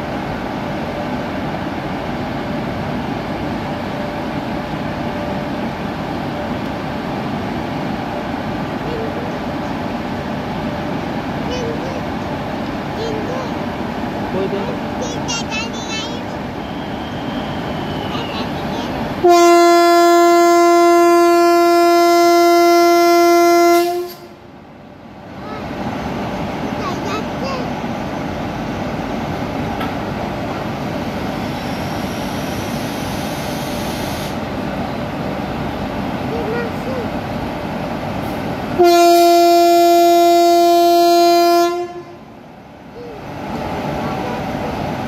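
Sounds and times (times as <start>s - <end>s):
train rolling past: 0.0s - 45.0s
locomotive air horn blast: 19.2s - 24.4s, 38.8s - 42.3s.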